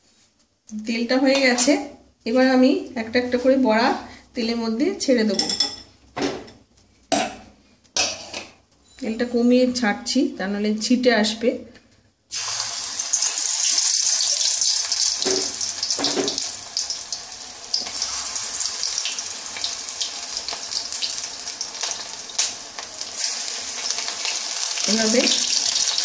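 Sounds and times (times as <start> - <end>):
crackling sizzle of deep-frying: 12.3 - 26.0.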